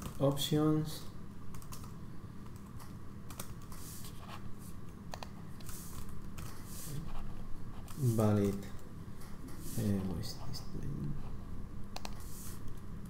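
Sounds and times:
low steady hum: 0.0s - 13.0s
computer keyboard typing: 1.5s - 3.9s, 5.1s - 6.6s, 7.8s - 8.8s, 11.9s - 12.8s.

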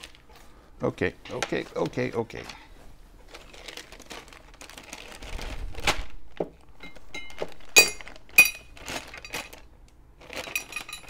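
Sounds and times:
packing rustling and knocks: 3.3s - 11.0s.

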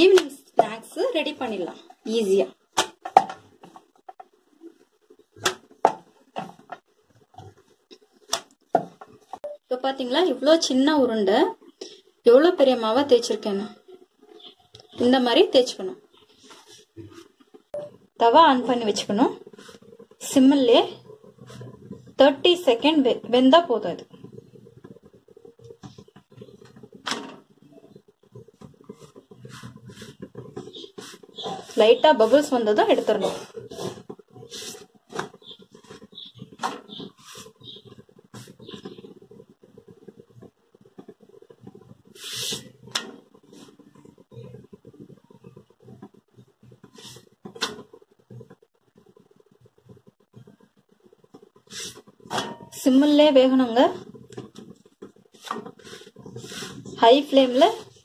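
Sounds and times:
rolling pin rolling dough: 12.3s - 58.0s.

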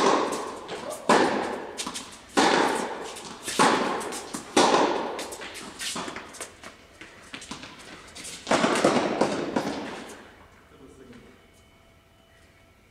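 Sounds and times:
tennis ball pops echoing: 3.6s - 5.2s, 8.5s - 9.9s.

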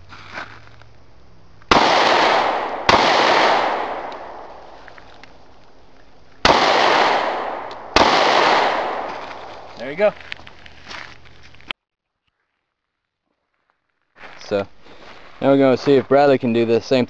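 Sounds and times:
pistol shots with echo: 1.7s - 4.8s, 6.4s - 9.8s.

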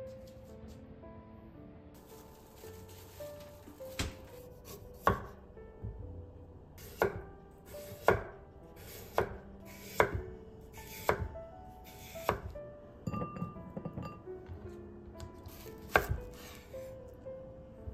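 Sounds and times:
knife chopping on wooden board: 3.9s - 5.4s, 6.9s - 7.2s, 7.8s - 8.3s, 8.9s - 11.4s, 12.2s - 12.6s, 15.3s - 16.6s.

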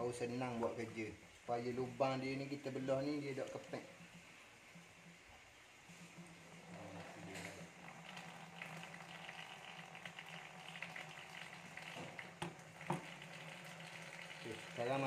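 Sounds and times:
honey crackling and popping: 6.1s - 15.0s.

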